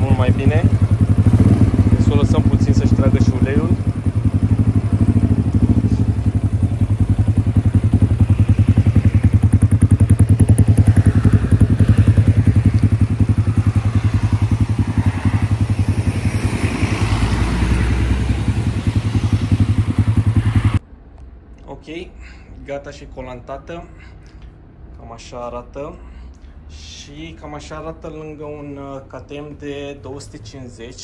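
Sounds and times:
motorcycle engine idling: 0.0 - 20.8.

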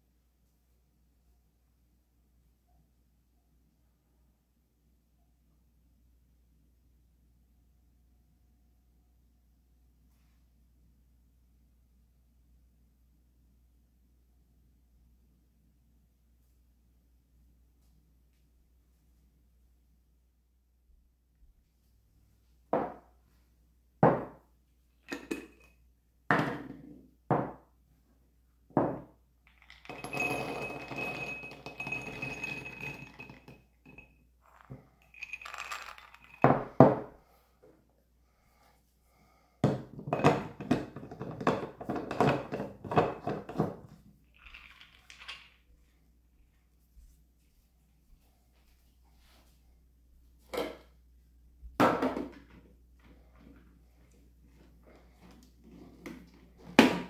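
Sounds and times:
kitchenware knocking and clinking: 24.0 - 24.4, 25.1 - 25.7, 28.8 - 37.2, 39.6 - 45.5, 51.8 - 52.6.

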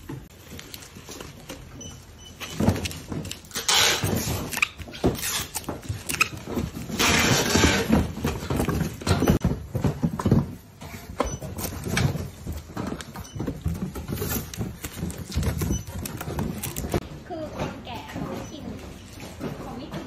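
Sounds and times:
bubble wrap crinkling: 0.3 - 1.8, 13.8 - 17.0.

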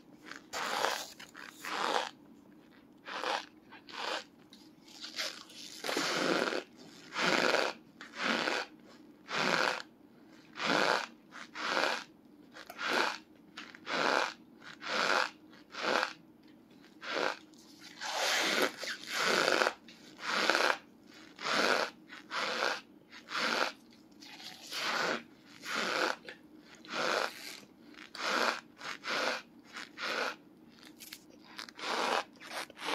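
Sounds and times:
squeaky crunchy chewing: 0.2 - 8.7, 16.8 - 32.9.

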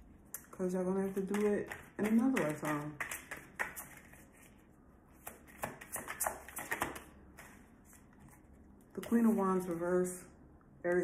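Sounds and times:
cards being shuffled: 5.2 - 8.5.

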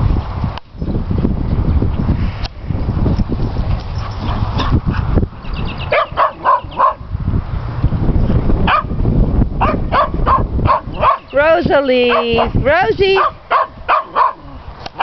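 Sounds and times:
dogs barking: 5.8 - 7.1, 8.6 - 9.0, 9.6 - 11.4, 12.0 - 15.0.

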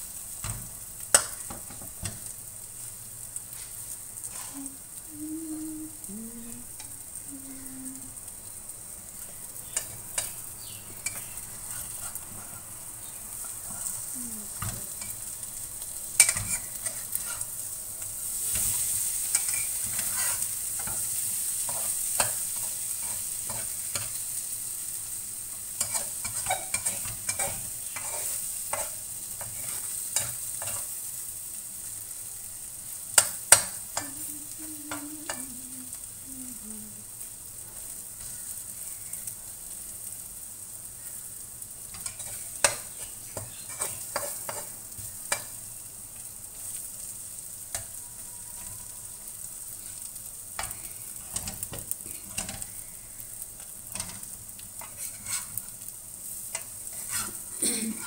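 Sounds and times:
food sizzling in a wok: 0.0 - 58.0
metal spatula scraping a wok: 11.0 - 12.6, 16.2 - 17.6, 18.3 - 24.2, 25.8 - 31.0, 41.9 - 45.6, 53.9 - 55.8, 56.4 - 57.5.

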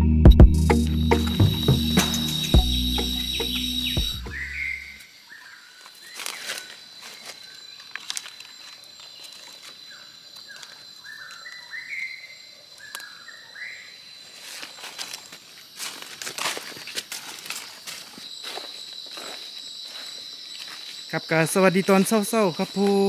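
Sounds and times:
high insect drone: 0.6 - 23.0
rustling in dry leaf litter: 14.2 - 18.4.

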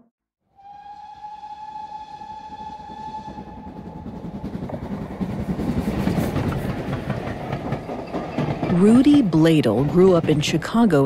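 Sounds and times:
train whistle: 0.5 - 4.5
clickety-clack of wheels on rails: 2.4 - 11.0
rumble of rolling wheels: 3.2 - 11.0.

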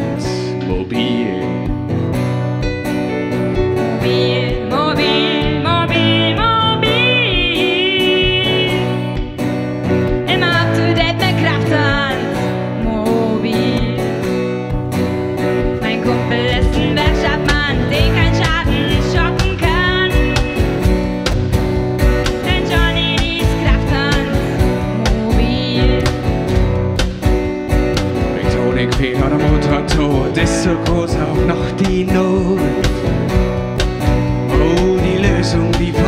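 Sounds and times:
bass: 0.0 - 36.0
strummed acoustic guitar: 0.0 - 36.0
woman singing: 3.7 - 9.4, 10.1 - 14.3, 15.6 - 20.8, 22.2 - 26.3
steady low beat: 17.0 - 36.0.

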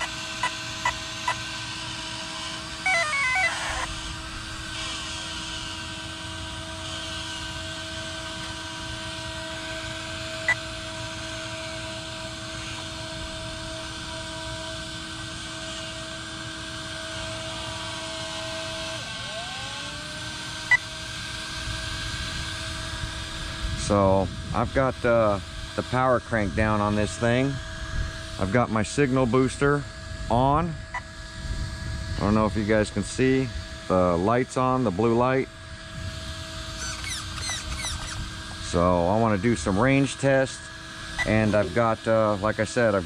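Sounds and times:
steady electronic tone: 36.0 - 39.8.

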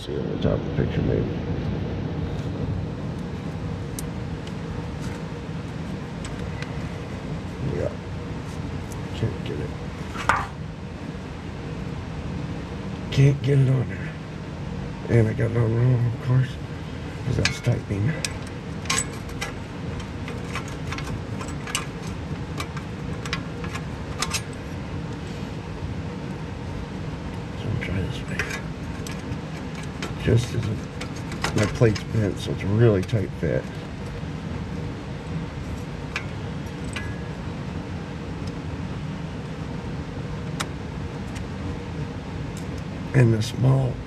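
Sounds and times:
low background rumble: 0.0 - 44.0
low hum: 0.0 - 44.0.

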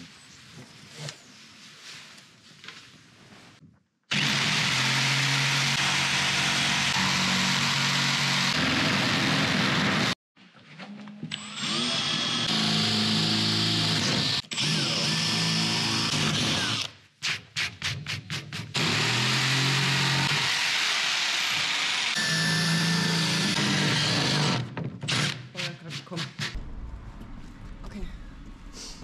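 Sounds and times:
cordless drill boring into wood: 4.1 - 10.1, 11.3 - 16.9, 18.8 - 25.4
electric jigsaw cutting wood board: 4.1 - 10.2, 11.4 - 16.9, 18.8 - 25.4.

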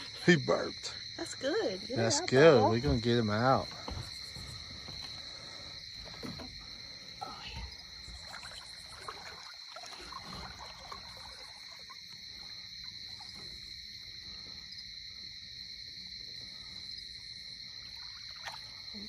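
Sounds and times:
crickets chirping: 0.0 - 19.0
faint rustles and knocks: 3.7 - 8.5.

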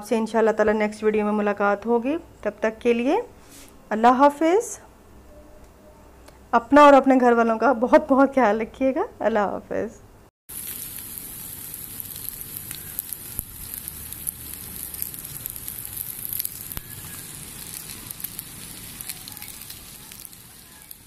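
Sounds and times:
meat sizzling on a grill: 10.5 - 21.0.

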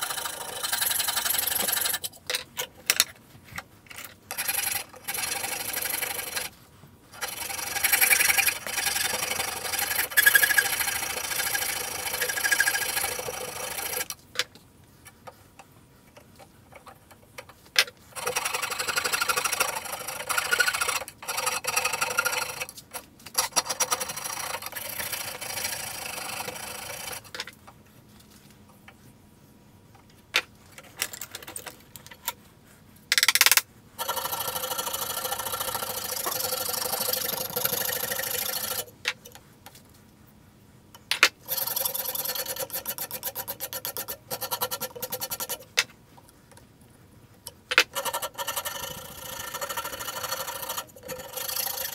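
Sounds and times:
rasp scraping wood: 4.3 - 6.6, 7.2 - 14.1, 41.5 - 45.8.

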